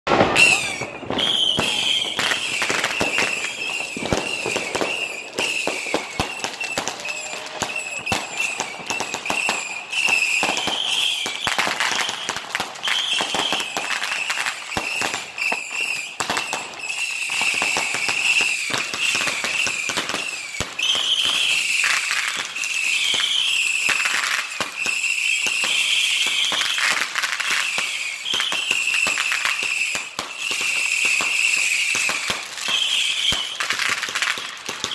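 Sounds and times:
firework bangs and crackling: 0.1s - 34.9s
high wavering whistle: 0.2s - 24.0s.

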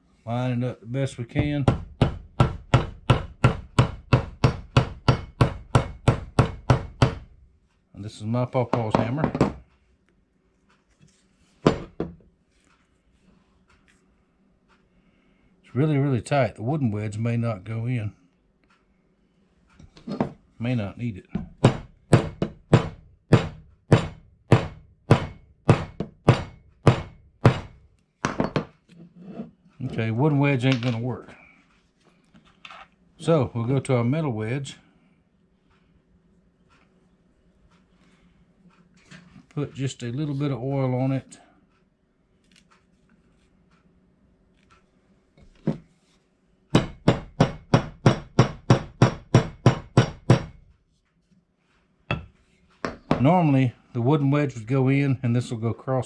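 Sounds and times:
hammer striking wooden handle: 1.4s - 7.3s, 11.7s - 12.2s, 21.4s - 28.7s, 46.7s - 50.6s, 52.1s - 53.3s.

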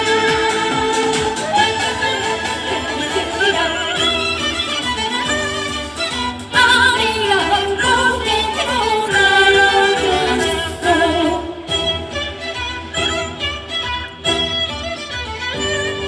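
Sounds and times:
woman singing with vibrato: 0.0s - 4.4s, 6.5s - 11.8s
string instruments playing: 0.0s - 16.0s.

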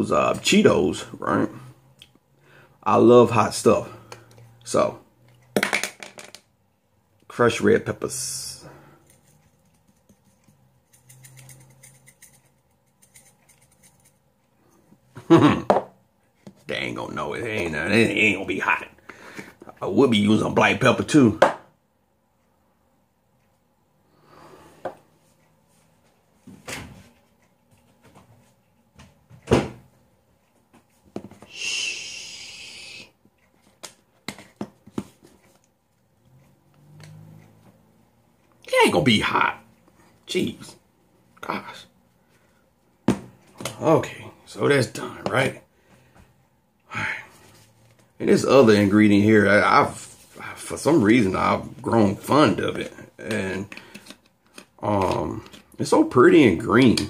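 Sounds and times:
steady hiss: 31.4s - 33.2s.

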